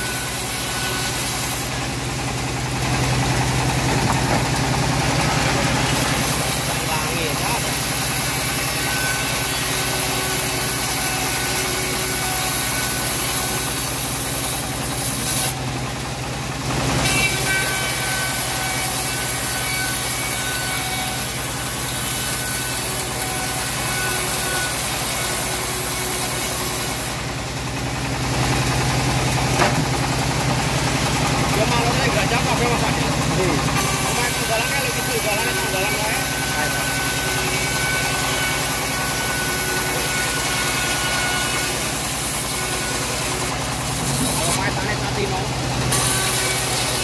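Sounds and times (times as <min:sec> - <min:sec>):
machine motor humming: 0:00.0 - 0:14.5, 0:21.4 - 0:41.8
saw blade cutting wood: 0:00.0 - 0:15.6, 0:17.0 - 0:27.3, 0:28.5 - 0:47.0.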